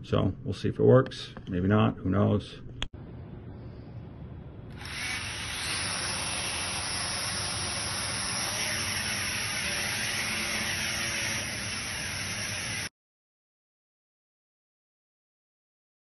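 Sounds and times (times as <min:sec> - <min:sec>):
toy drone propellers whirring: 0:04.8 - 0:12.9.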